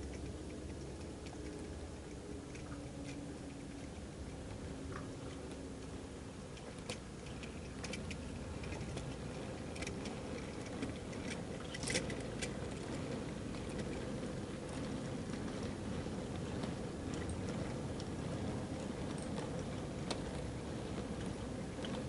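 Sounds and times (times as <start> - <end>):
sharp clicks and ticks: 0.0 - 15.7
model train rolling on track: 0.0 - 22.0.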